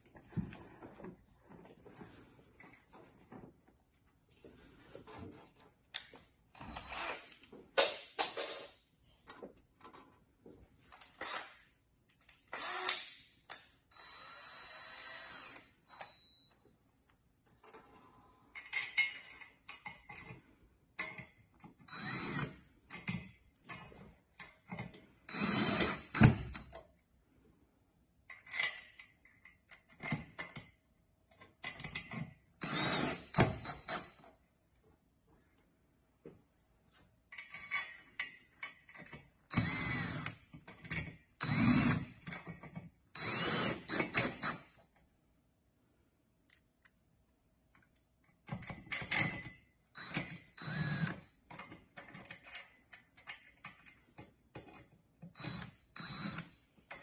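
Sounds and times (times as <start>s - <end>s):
cordless drill driving screws: 12.5s - 13.1s, 14.0s - 15.7s, 25.3s - 26.5s, 32.6s - 34.0s, 39.5s - 40.4s, 41.4s - 42.1s, 43.2s - 44.6s, 50.0s - 51.2s, 55.4s - 56.5s.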